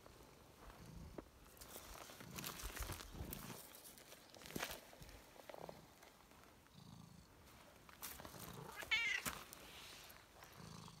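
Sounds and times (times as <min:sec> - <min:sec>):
cat meowing: 0:08.7 - 0:09.3
cat purring: 0:10.3 - 0:11.0.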